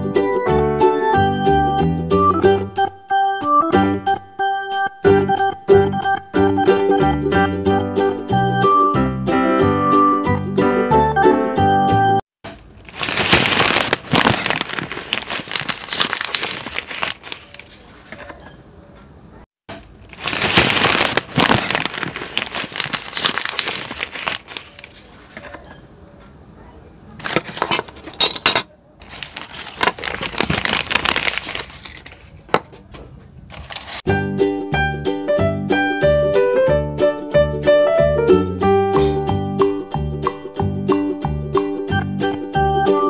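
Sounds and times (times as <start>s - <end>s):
newspaper crinkling and rustling: 12.6s - 18.4s, 19.9s - 25.6s, 29.0s - 32.6s, 33.5s - 34.1s
small toy utensils clinking: 27.3s - 28.7s.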